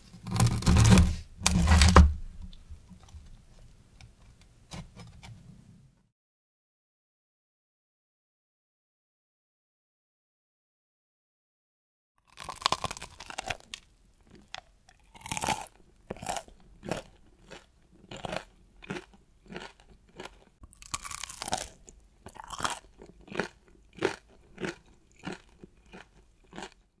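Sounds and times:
crunchy chewing: 0:12.2 - 0:26.9.

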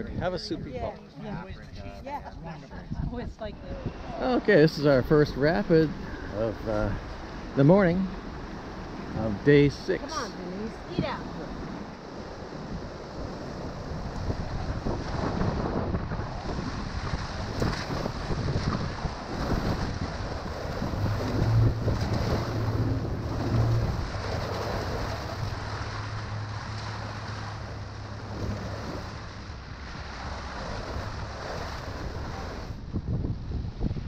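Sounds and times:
wind buffeting microphone: 0:00.0 - 0:34.0
river water splashing: 0:03.6 - 0:33.1
low steady hum: 0:15.8 - 0:34.0.

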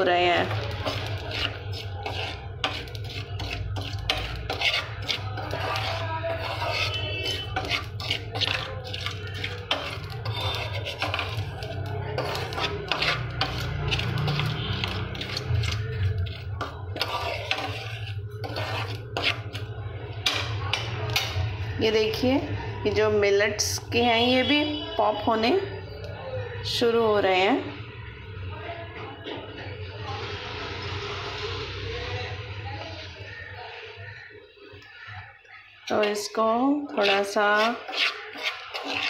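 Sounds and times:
spoon scraping millet in salt: 0:00.0 - 0:21.3, 0:35.9 - 0:39.0.

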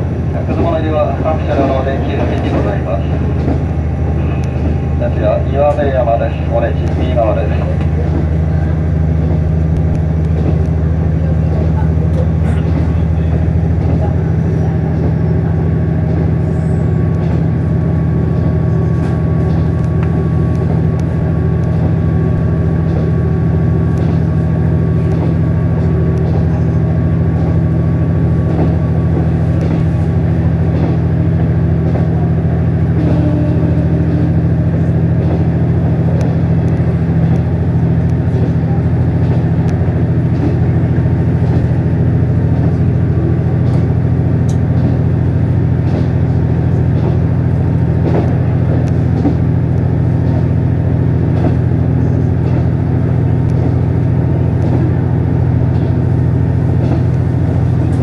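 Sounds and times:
diesel railcar drone: 0:00.0 - 0:58.0
faint track clicks: 0:00.4 - 0:08.4, 0:43.6 - 0:45.0.

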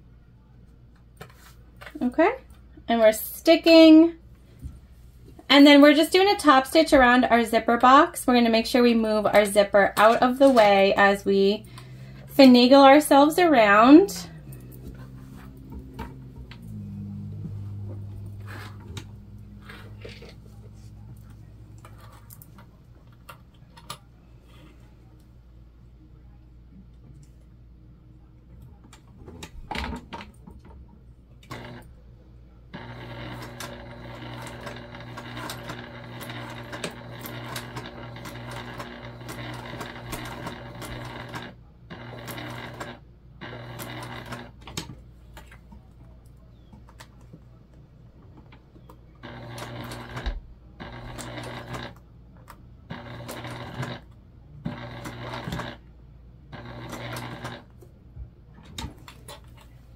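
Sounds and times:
electric sewing machine stitching: 0:09.4 - 0:20.6, 0:31.4 - 0:31.9, 0:32.8 - 0:44.6, 0:49.2 - 0:52.0, 0:52.9 - 0:55.8, 0:56.5 - 0:57.8.

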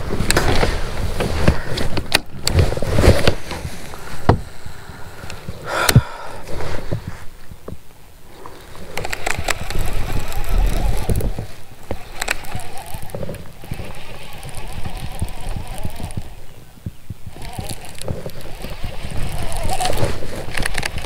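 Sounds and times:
wind rumbling on microphone: 0:00.0 - 0:21.0
fishing reel clicks and knocks: 0:08.9 - 0:21.0.

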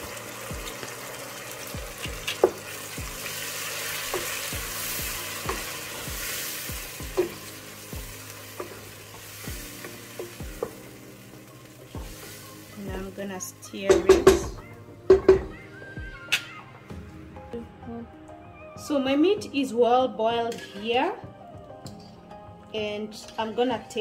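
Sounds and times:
food sizzling in hot oil: 0:00.0 - 0:15.4
wooden spoon knocking pot: 0:13.9 - 0:15.6.

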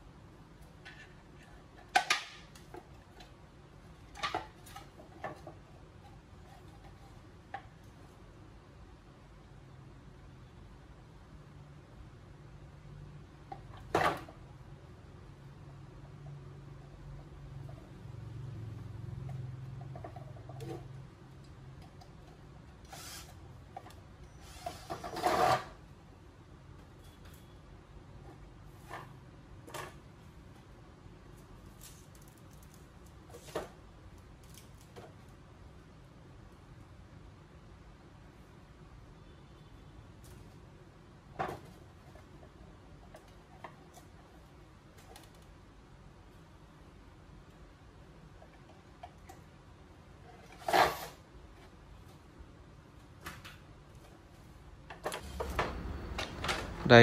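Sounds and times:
scraping and rustling of cabinet parts: 0:00.8 - 0:07.8, 0:24.4 - 0:25.8, 0:50.2 - 0:52.3.

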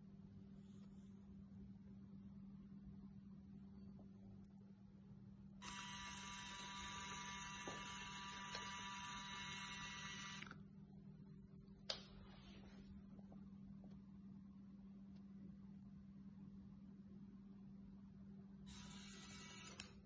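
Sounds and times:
small motors whining: 0:05.6 - 0:10.5, 0:18.7 - 0:19.9.

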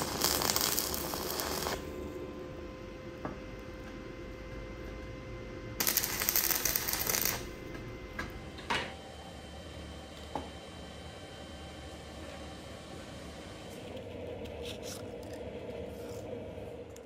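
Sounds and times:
arc welder crackling: 0:00.0 - 0:02.3, 0:05.8 - 0:08.4.

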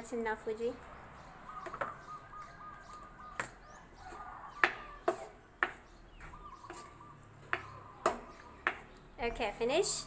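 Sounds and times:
spatula scraping a cooking pot: 0:04.0 - 0:05.8, 0:06.6 - 0:07.0.

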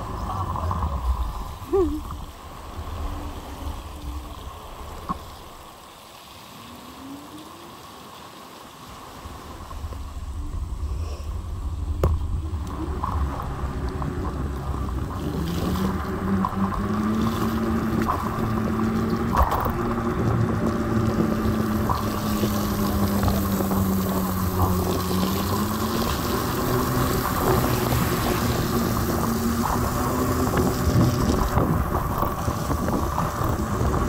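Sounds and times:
tyres on wet asphalt: 0:00.0 - 0:34.0
wind rumbling on microphone: 0:00.0 - 0:34.0.

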